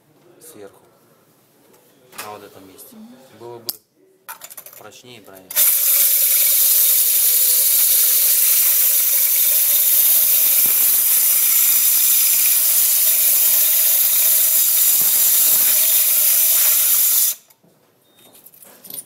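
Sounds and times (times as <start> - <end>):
core drill grinding: 5.6 - 17.4.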